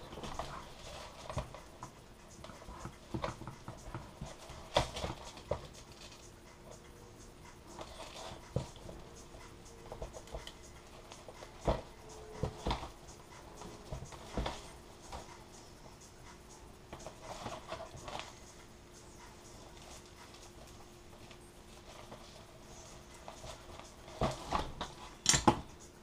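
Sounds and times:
film crinkling: 0.0 - 6.4.

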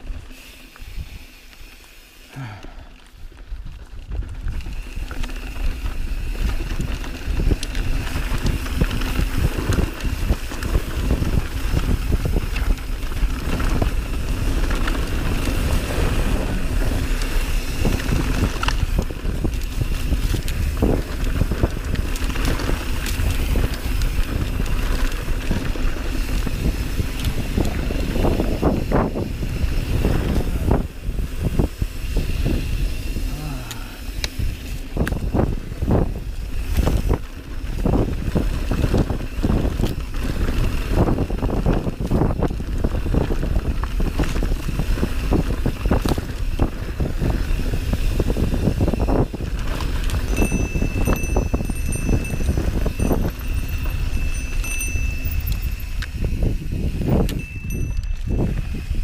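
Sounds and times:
bike rattling over bumps: 0.0 - 59.0
tyres rolling on dirt: 0.0 - 59.0
wind buffeting microphone: 2.4 - 59.0.

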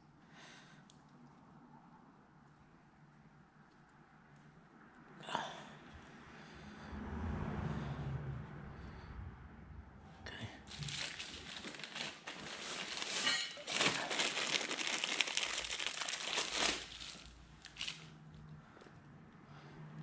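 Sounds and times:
plastic bag crinkling: 10.7 - 18.1.

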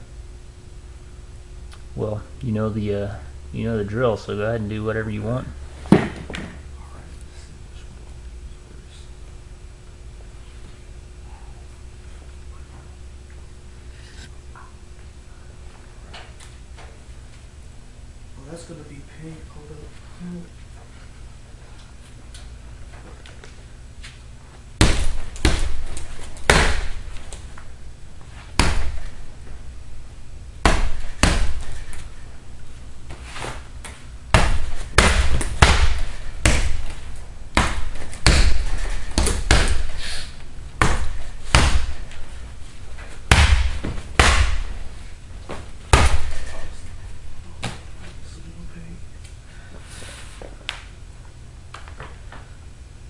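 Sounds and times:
punching bag being hit: 24.8 - 27.2, 28.5 - 29.3, 30.6 - 32.1, 34.3 - 42.2, 43.2 - 44.8, 45.9 - 46.7.

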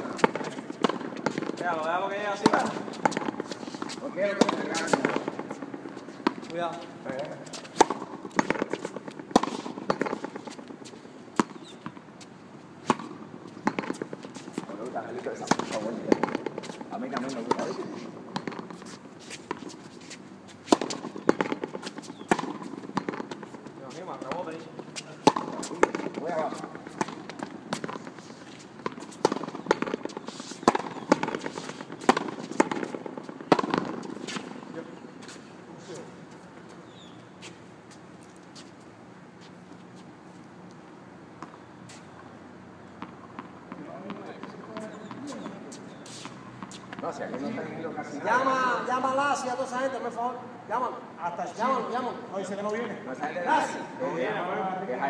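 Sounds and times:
ball cracking off racket and wall: 25.2 - 28.1, 28.8 - 34.5.

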